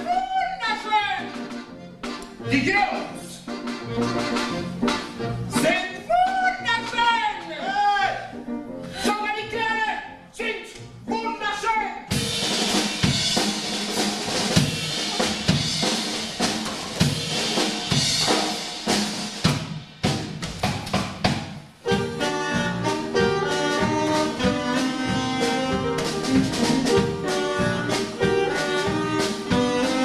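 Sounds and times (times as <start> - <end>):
drum kit beat: 0.0 - 8.0, 12.1 - 30.0
horns: 0.0 - 9.3, 21.8 - 30.0
jazz band playing: 1.0 - 9.2, 12.1 - 30.0.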